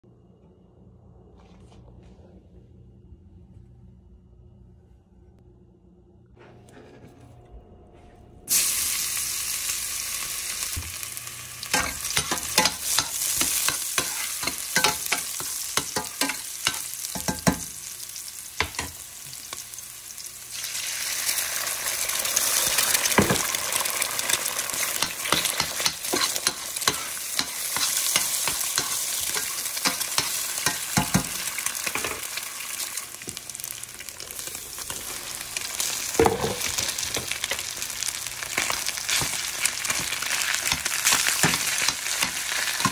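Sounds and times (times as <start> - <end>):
garlic sizzling in hot oil: 8.5 - 42.9
utensil scraping a pan: 25.0 - 31.1.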